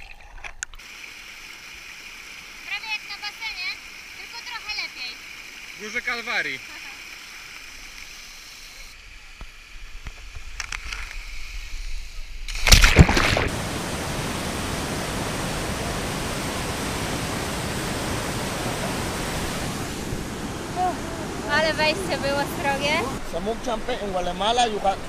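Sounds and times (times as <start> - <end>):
water splashing and trickling: 0.0 - 8.1, 12.5 - 24.5
river cascade rushing: 12.7 - 23.3.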